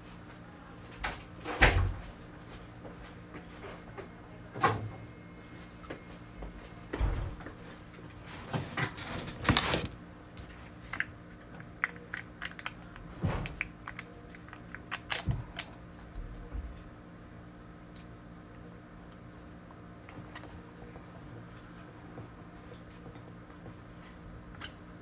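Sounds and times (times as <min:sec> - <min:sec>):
wrapper crinkling and rustling: 0:08.9 - 0:10.0.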